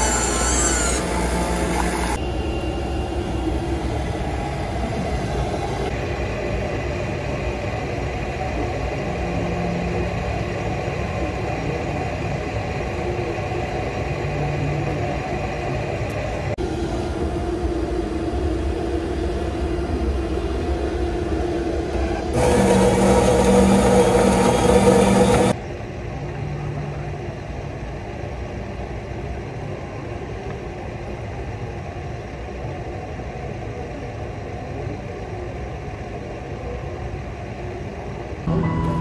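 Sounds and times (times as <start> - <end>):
coffee machine humming: 0.0 - 2.2, 21.9 - 25.6
loud noisy steady tone: 0.0 - 39.0.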